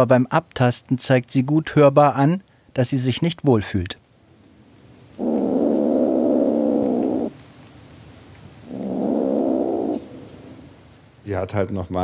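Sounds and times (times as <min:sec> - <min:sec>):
cat growling: 0:05.2 - 0:07.4, 0:08.6 - 0:10.7.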